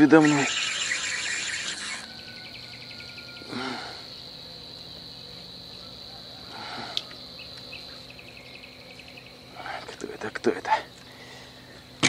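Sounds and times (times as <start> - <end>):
high insect drone: 0.0 - 12.0.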